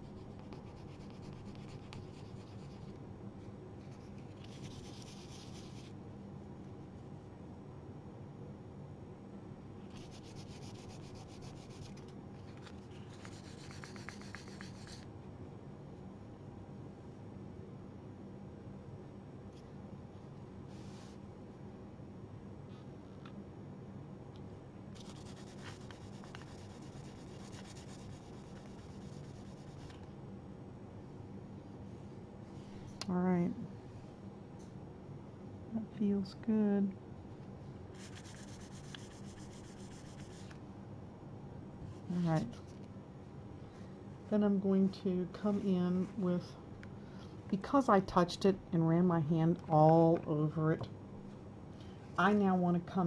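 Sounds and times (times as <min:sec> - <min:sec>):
fine sandpaper scratching wood: 0:09.9 - 0:12.0, 0:13.1 - 0:15.0, 0:25.0 - 0:29.9, 0:38.0 - 0:40.5.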